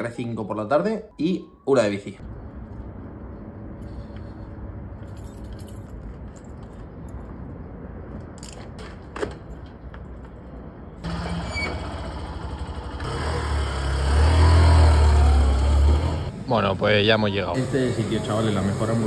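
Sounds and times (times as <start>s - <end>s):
keys and helmet rattling: 4.9s - 7.5s
motorcycle engine starting and idling: 11.0s - 16.3s.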